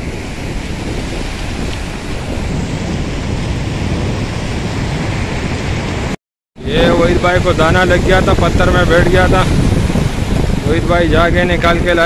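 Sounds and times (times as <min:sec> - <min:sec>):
surf washing over rocks: 0:00.0 - 0:12.0
wind buffeting microphone: 0:00.0 - 0:12.0.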